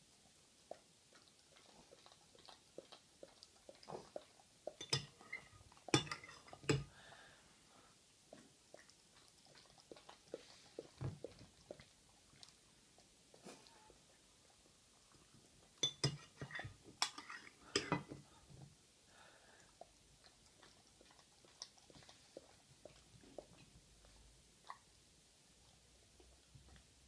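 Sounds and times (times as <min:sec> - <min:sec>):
dog chewing: 0:00.7 - 0:06.6, 0:08.3 - 0:15.8, 0:19.8 - 0:24.9
metal spoon clinking on ceramic bowl: 0:04.8 - 0:06.8, 0:15.8 - 0:18.0.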